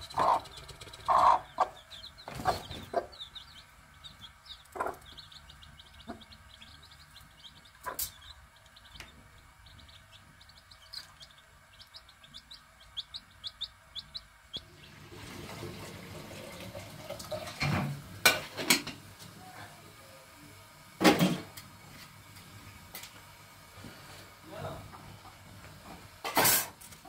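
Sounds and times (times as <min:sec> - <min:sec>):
chicks peeping: 0:00.0 - 0:15.1
metal pot and utensils clattering: 0:26.2 - 0:26.8.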